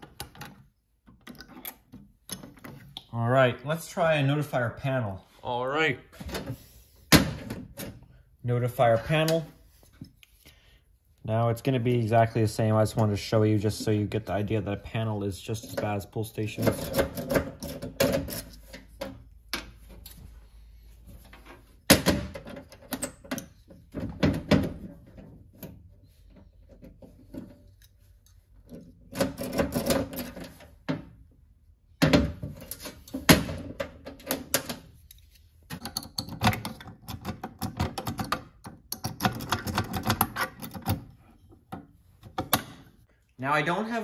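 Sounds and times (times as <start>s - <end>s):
lock pick scraping and clicking: 16.6s - 19.1s, 34.2s - 41.1s.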